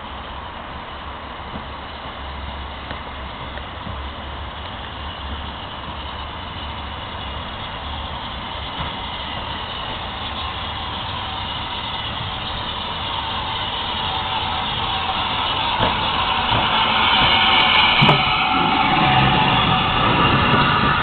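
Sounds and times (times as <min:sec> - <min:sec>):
locomotive rumble: 0:00.0 - 0:21.0
steam locomotive hissing: 0:00.0 - 0:21.0.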